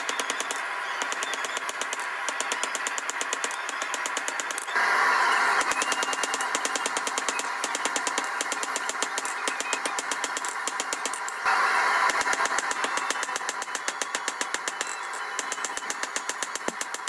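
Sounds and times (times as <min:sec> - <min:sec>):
gas forge burner hiss: 0:04.8 - 0:06.4.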